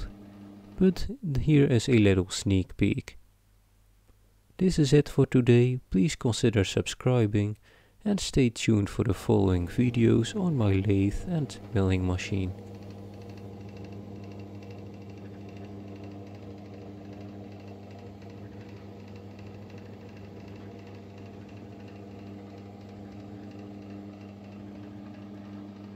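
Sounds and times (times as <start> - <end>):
electric motor humming: 0.0 - 0.9, 9.6 - 25.9.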